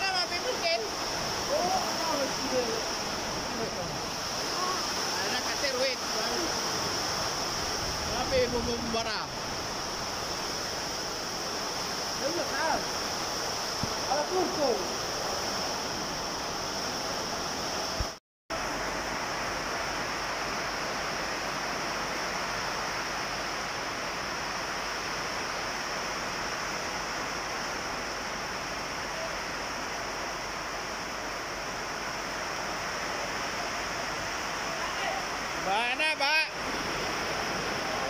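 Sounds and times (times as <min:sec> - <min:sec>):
heavy rain pouring: 0:00.0 - 0:38.0.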